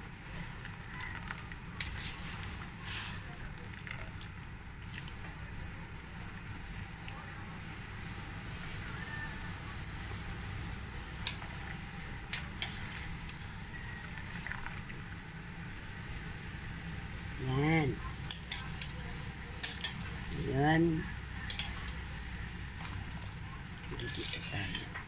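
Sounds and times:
steady low hum: 0.0s - 25.0s
wire skimmer clinking on wok: 18.3s - 20.3s, 21.4s - 22.0s.

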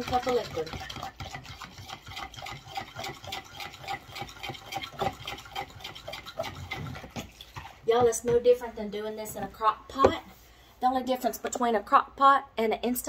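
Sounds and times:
liquid sloshing: 0.0s - 8.6s.

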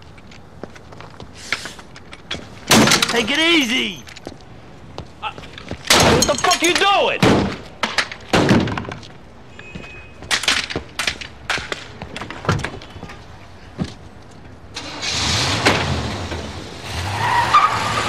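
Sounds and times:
car engine starting and revving: 14.8s - 18.0s.

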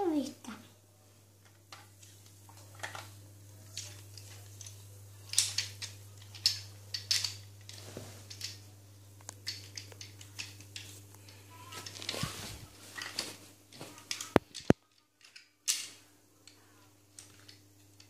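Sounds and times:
plastic toy parts clicking: 3.7s - 8.6s, 9.3s - 10.9s, 14.1s - 16.6s
plastic toy parts snapping: 5.3s - 8.6s, 9.2s - 10.9s, 14.1s - 16.0s.

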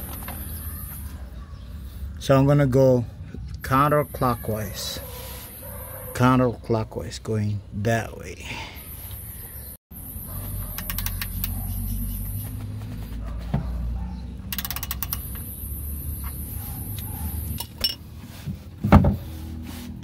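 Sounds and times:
socket ratchet clicking: 10.7s - 11.6s, 14.5s - 15.5s.

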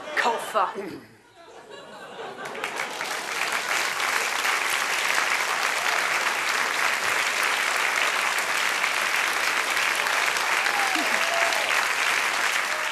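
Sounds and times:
audience applauding: 2.2s - 12.9s.

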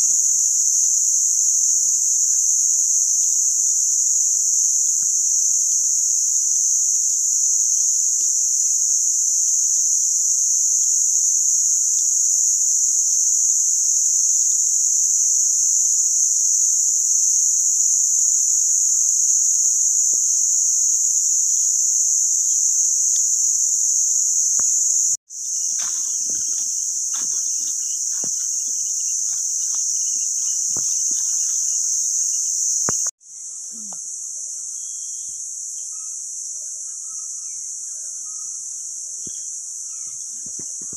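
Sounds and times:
high-pitched insect chorus: 0.0s - 40.9s
faint rustles and knocks: 25.6s - 33.1s.

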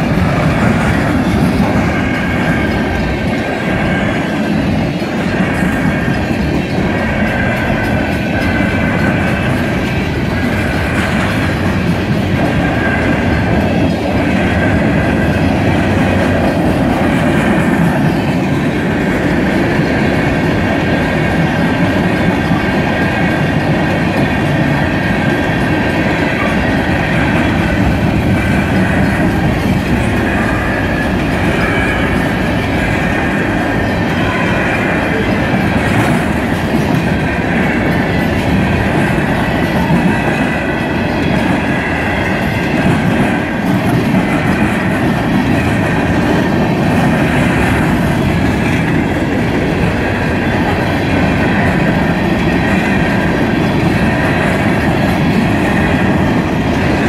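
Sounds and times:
train wheels rumbling on rail: 0.0s - 57.0s
high ringing tone: 30.2s - 35.4s.

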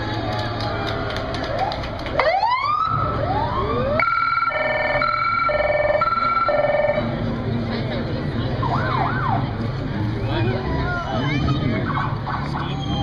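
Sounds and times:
emergency vehicle siren wailing: 1.5s - 7.2s, 8.6s - 9.6s.

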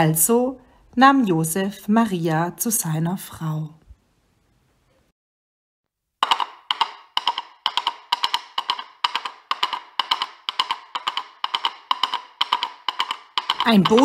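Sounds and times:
horse hooves clip-clopping: 6.2s - 14.0s.

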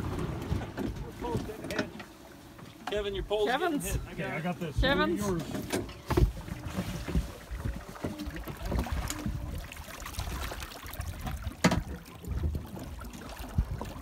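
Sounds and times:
fish splashing in water: 6.1s - 14.0s.

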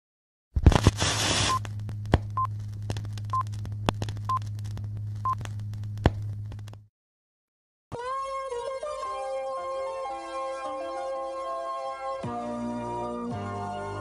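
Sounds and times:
low hum: 0.6s - 6.8s
burst of hiss: 1.0s - 1.6s
film clicks and pops: 1.6s - 6.8s.

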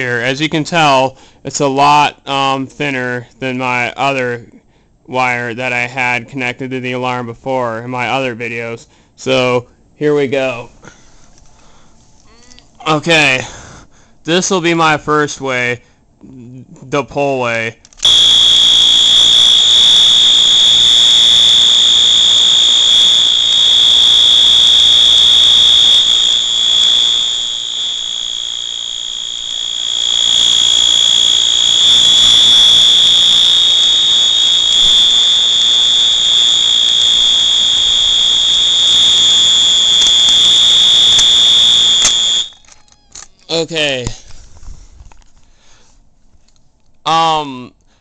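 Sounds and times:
fire alarm horn steady tone: 18.0s - 42.7s.

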